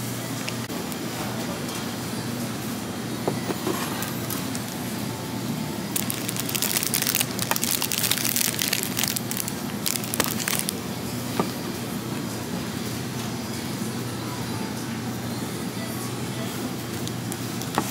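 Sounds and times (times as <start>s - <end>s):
shop background hum: 0.0s - 17.9s
plastic wrapping crackling: 5.9s - 10.8s, 16.9s - 17.9s.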